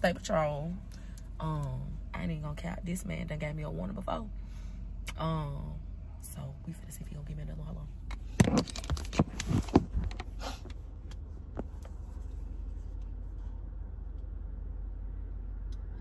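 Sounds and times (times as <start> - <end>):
car engine idling hum: 0.0 - 16.0
handling knocks and rustles: 8.4 - 13.4.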